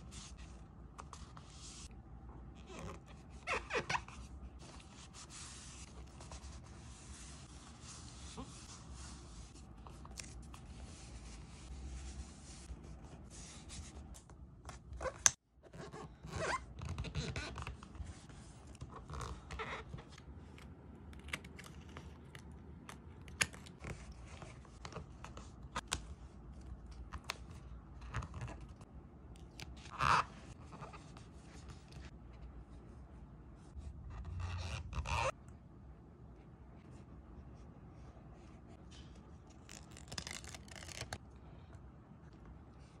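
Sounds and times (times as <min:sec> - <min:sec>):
paper rubbing and scraping: 0:00.0 - 0:01.9, 0:02.8 - 0:14.1.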